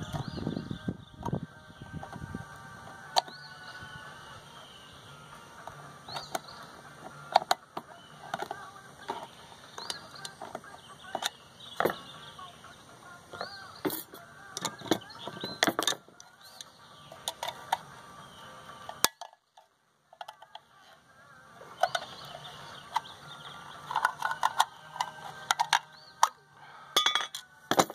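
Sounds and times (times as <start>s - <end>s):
tools set down on bench: 13.8s - 16.0s, 27.0s - 27.9s
screwdriver prying at metal casing: 23.8s - 26.4s.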